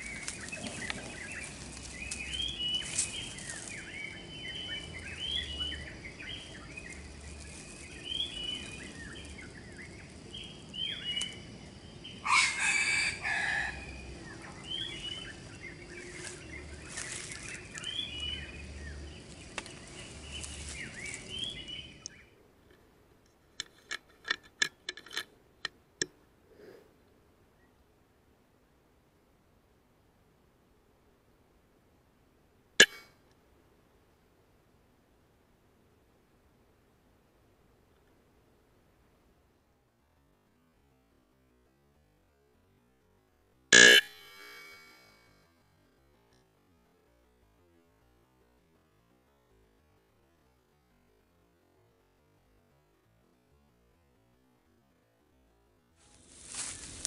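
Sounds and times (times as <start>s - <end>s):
forest birds calling: 0.0s - 22.4s, 56.2s - 57.0s
junglefowl crowing: 12.2s - 15.2s, 43.8s - 44.3s.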